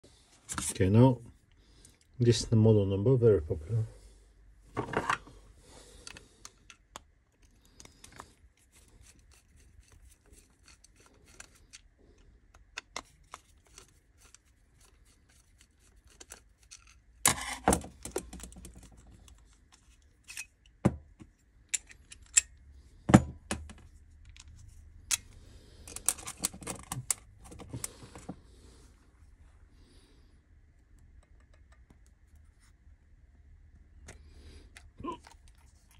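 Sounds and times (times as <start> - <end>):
small clicks and scrapes: 6.0 - 22.6, 23.6 - 28.4, 30.8 - 32.8, 34.0 - 35.9.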